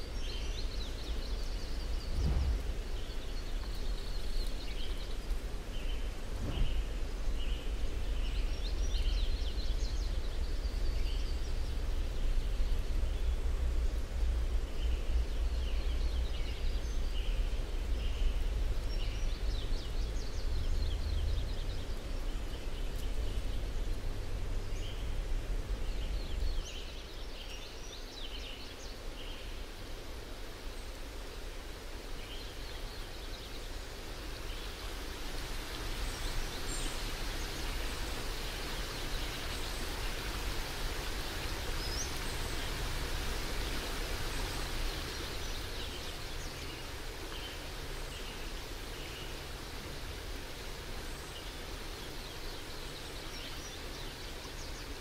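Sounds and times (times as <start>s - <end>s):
small birds chirping: 0.0s - 55.0s
low rumble: 2.0s - 3.5s, 6.3s - 7.6s.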